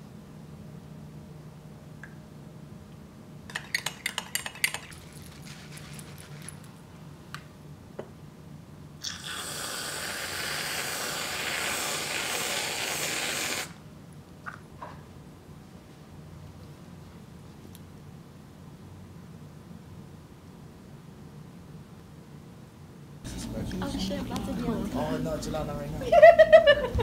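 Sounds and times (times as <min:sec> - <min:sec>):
aerosol can hissing: 0:09.0 - 0:13.8.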